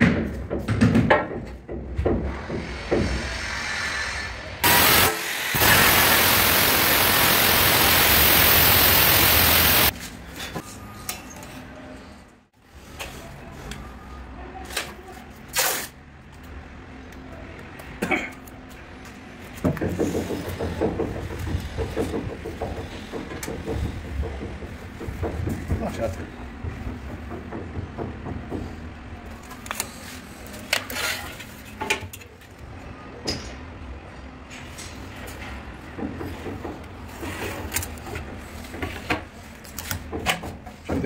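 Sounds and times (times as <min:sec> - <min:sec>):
angle grinder cutting stone: 0:04.6 - 0:09.9.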